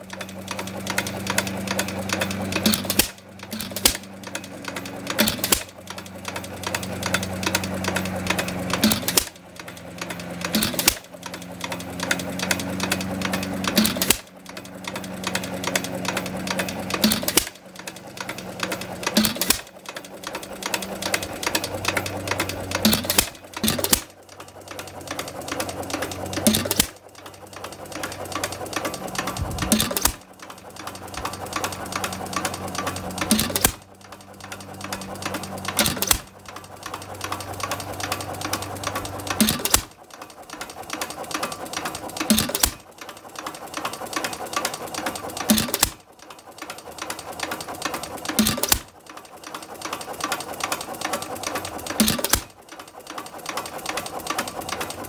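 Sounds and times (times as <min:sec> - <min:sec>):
engine mechanical clatter: 0:00.0 - 0:55.0.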